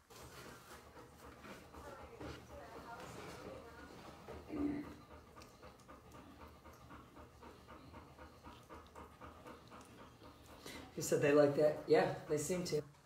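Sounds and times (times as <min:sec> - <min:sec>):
puppies licking: 0:00.1 - 0:12.8.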